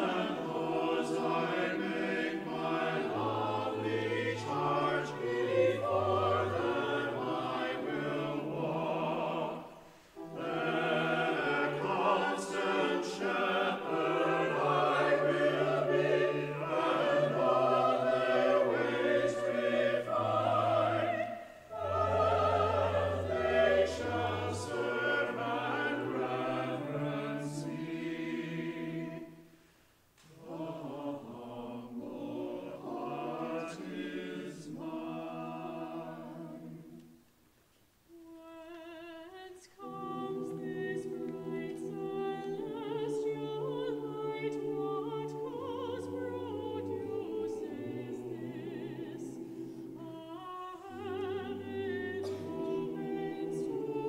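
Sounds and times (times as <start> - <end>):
church choir singing: 0.0 - 37.3, 38.1 - 54.0
keyboard accompaniment: 10.2 - 29.4.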